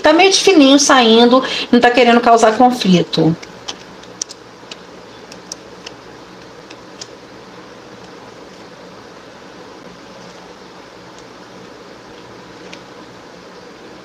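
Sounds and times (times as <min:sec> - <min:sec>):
faint low hum: 0:00.0 - 0:14.0
room noise hiss: 0:00.0 - 0:14.0
small clicks: 0:03.4 - 0:07.2.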